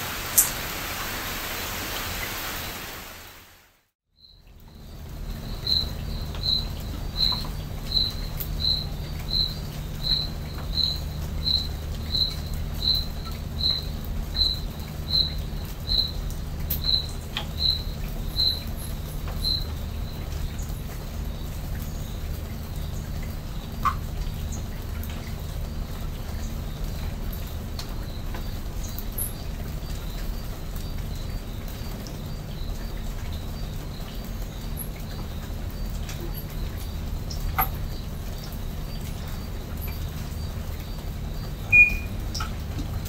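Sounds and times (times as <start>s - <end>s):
steady low hum: 4.2s - 43.0s
night creature chirping: 41.7s - 42.1s.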